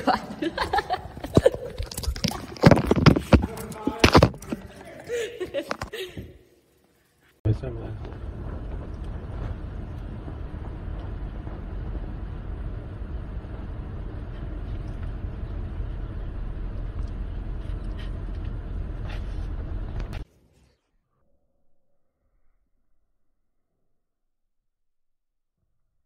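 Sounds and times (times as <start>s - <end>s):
cabin noise: 0.0s - 6.5s, 7.5s - 20.3s
vehicle engine running: 7.5s - 20.2s.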